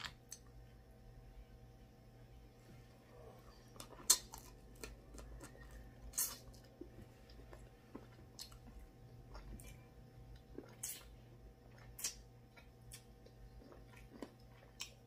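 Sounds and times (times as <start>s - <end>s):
chewing: 3.6s - 15.0s.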